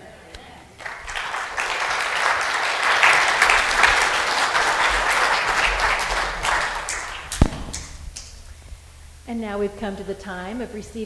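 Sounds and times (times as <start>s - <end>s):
crowd applauding: 0.8s - 8.4s.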